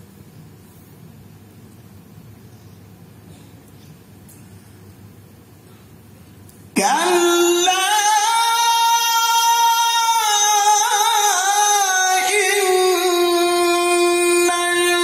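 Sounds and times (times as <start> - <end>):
man chanting recitation: 6.8 - 15.0.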